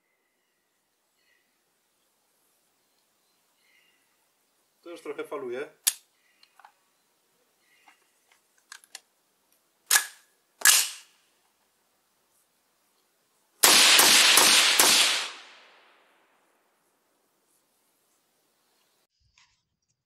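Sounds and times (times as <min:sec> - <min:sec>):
suppressed gunshots: 0:13.6 - 0:16.0.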